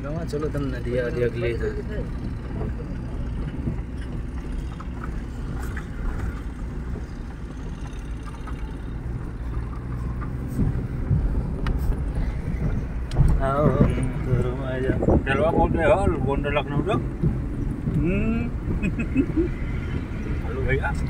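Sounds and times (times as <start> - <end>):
car engine and road rumble: 0.0 - 21.0
knocks and rattles: 2.0 - 15.6.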